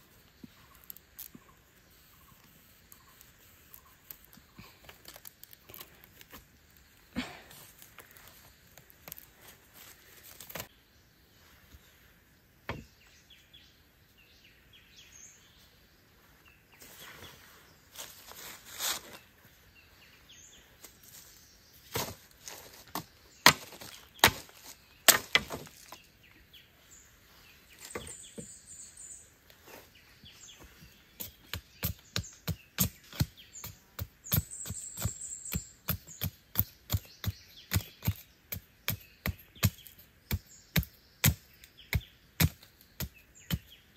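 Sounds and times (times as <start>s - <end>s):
bird chirping: 19.0s - 43.9s
machete chopping wood: 23.0s - 25.8s, 35.9s - 43.7s.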